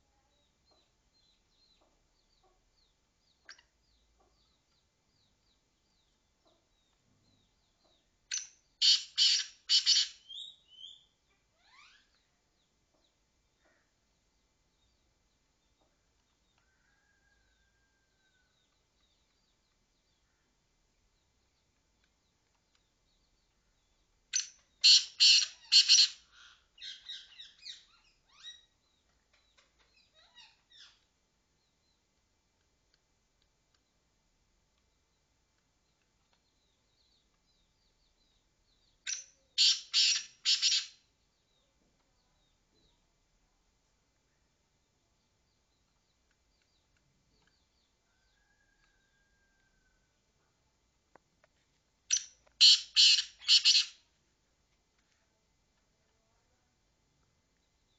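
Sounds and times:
francolin harsh calls: 8.8s - 12.1s, 39.2s - 41.0s, 52.1s - 54.0s.

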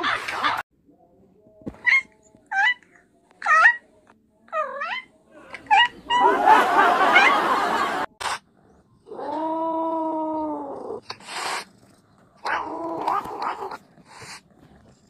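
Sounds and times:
cat hissing: 10.6s - 15.0s.

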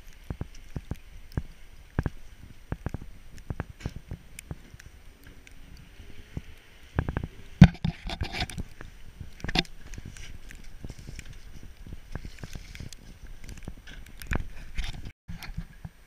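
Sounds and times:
light wind on microphone: 0.0s - 16.0s
camera handling knocks and thumps: 7.6s - 8.6s.

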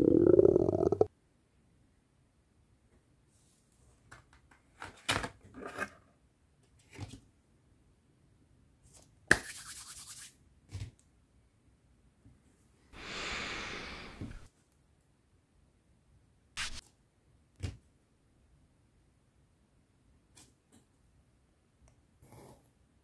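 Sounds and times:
palms rubbing together: 9.3s - 10.3s, 16.6s - 16.8s.

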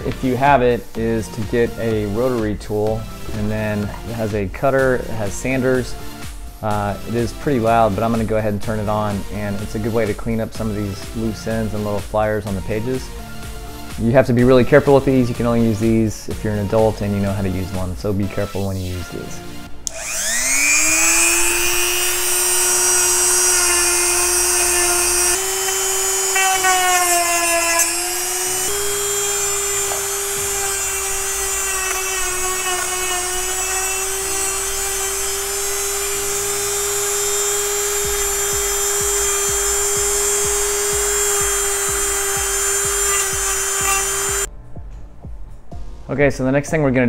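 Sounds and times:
rotary tool whining: 19.8s - 44.5s
bit grinding paper: 20.0s - 44.5s.

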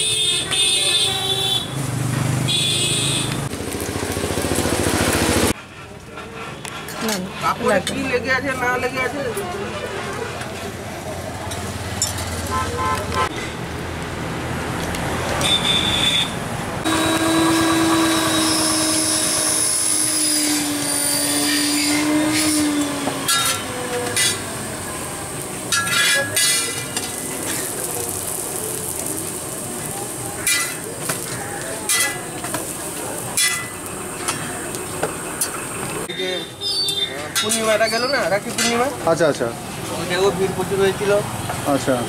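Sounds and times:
street noise: 0.0s - 42.0s
metal spatula scraping iron griddle: 17.4s - 24.5s, 25.5s - 28.4s, 30.1s - 34.6s.

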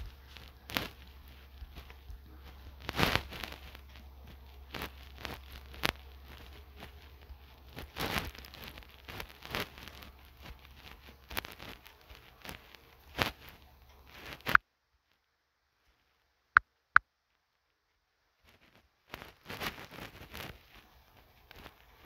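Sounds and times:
rubbing sound: 0.0s - 14.6s, 18.5s - 22.0s
steady low hum: 0.0s - 14.6s.

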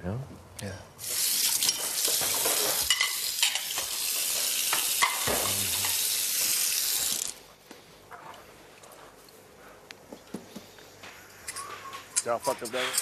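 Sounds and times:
steady hiss: 0.8s - 8.1s.

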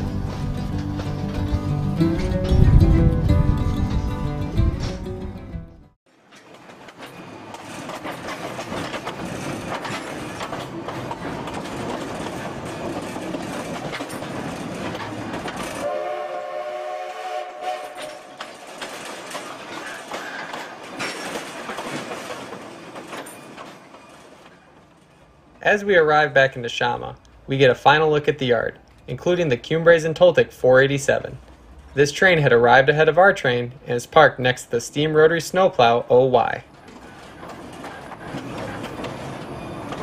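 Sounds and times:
train wheels clicking over rail joints: 0.0s - 2.7s, 6.1s - 15.9s, 17.0s - 40.0s
steam whistle: 15.8s - 18.5s.

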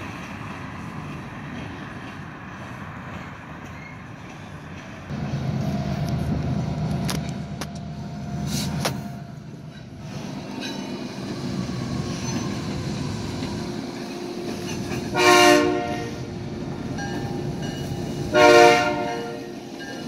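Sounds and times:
locomotive horn chords: 15.1s - 16.3s, 18.3s - 19.6s.

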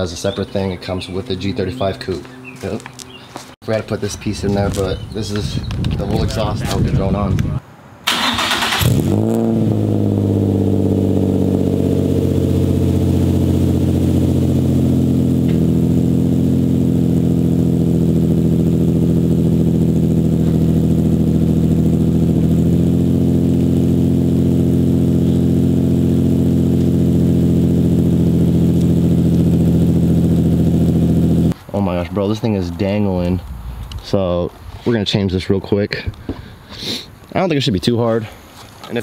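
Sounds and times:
car engine starting and idling: 8.0s - 31.6s.

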